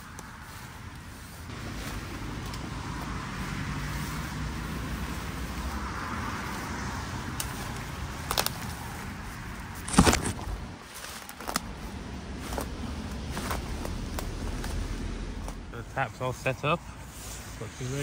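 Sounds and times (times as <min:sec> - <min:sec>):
road traffic passing: 0:00.0 - 0:18.0
sharp clicks and knocks: 0:09.8 - 0:10.7.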